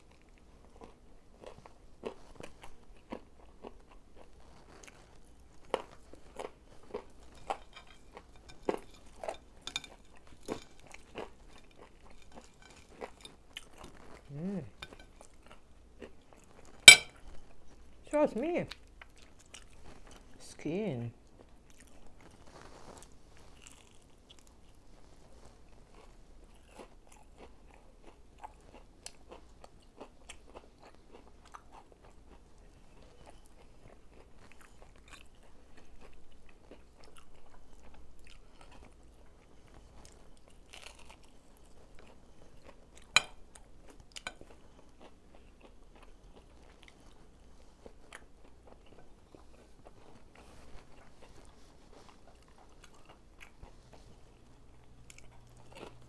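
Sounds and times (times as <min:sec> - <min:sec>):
chewing crispy fried chicken: 0:00.0 - 0:56.0
mouth sounds: 0:14.3 - 0:14.8.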